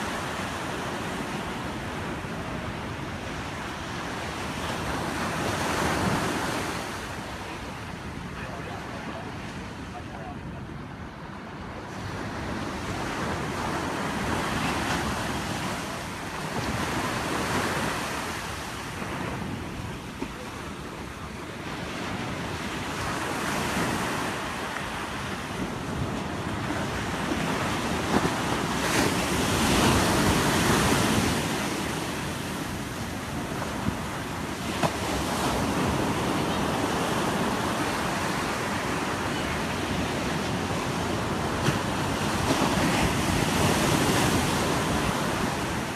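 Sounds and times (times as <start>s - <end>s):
ocean surf breaking: 0.0s - 45.9s.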